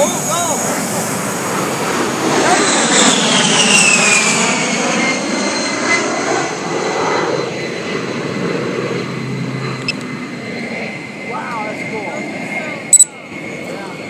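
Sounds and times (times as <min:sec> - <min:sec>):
jet engine whine: 0:00.0 - 0:14.0.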